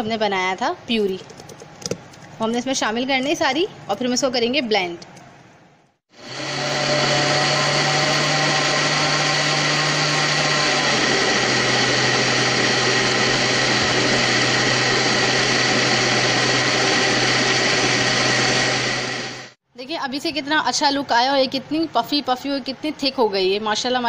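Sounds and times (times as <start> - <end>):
blender motor running: 6.1 - 19.6.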